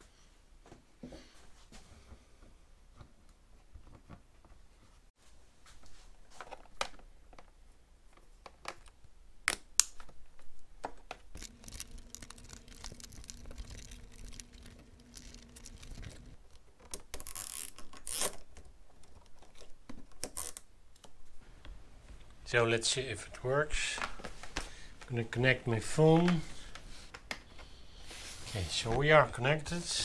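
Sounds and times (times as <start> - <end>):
plastic crinkling rustles: 11.3 - 20.6
steady low hum: 11.4 - 16.4.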